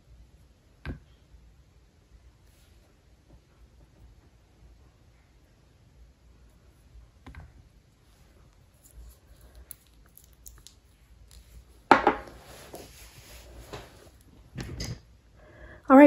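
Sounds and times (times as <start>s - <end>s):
rustling and scraping: 7.4s - 15.0s
sharp knock on table: 11.9s - 12.2s.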